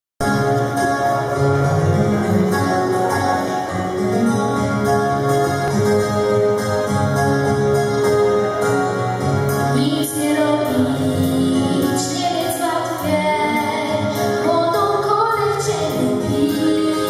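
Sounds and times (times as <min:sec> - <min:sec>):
girl singing over loudspeaker: 0:09.7 - 0:17.0.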